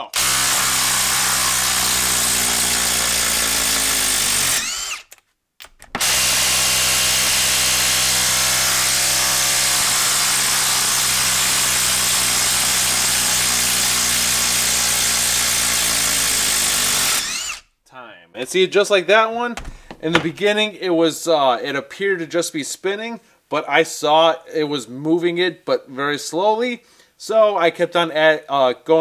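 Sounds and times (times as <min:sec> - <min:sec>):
impact driver rattling impacts: 0:00.0 - 0:17.6, 0:19.6 - 0:20.4.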